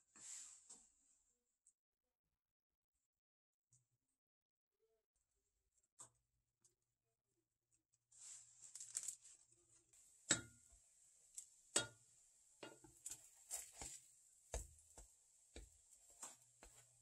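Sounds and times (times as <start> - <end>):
spatula knocking and scraping pan: 12.6 - 17.0.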